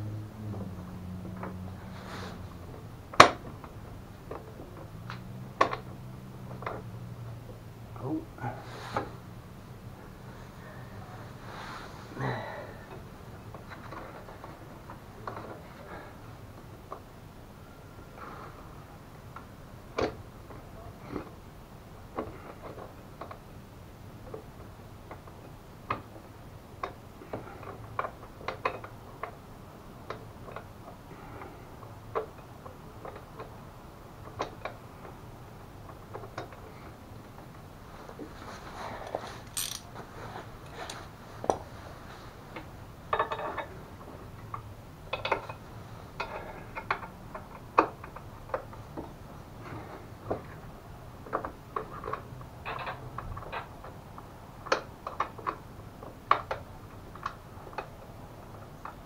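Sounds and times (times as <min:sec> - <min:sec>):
metal clinks of hand tools: 0:39.4 - 0:39.9.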